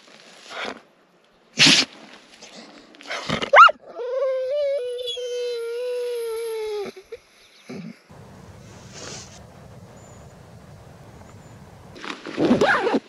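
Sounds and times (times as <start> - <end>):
dog yelping and howling: 3.5 - 6.8
dog huffing: 8.1 - 12.0.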